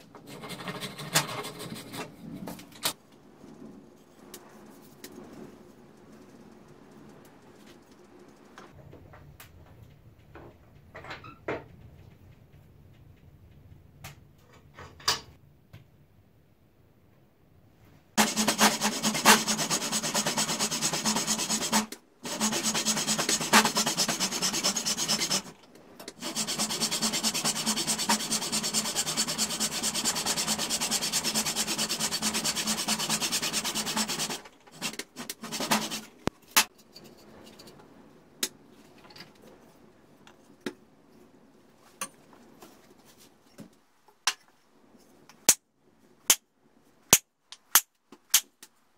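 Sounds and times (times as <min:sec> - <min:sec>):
sandpaper scraping wood: 0:18.2 - 0:36.2.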